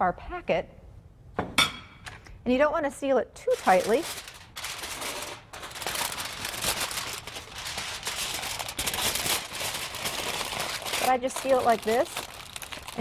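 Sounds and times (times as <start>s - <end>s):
aluminum foil crinkling: 3.4s - 13.0s.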